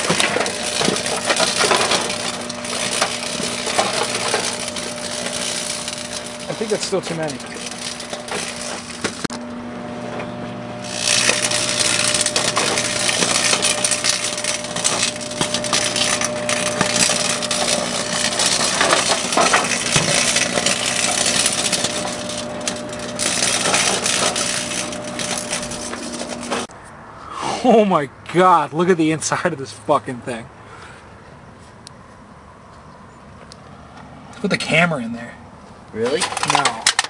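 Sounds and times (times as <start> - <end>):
electrical arcing crackling: 0.0 - 9.6, 10.6 - 26.7
microwave oven hum: 0.0 - 26.7.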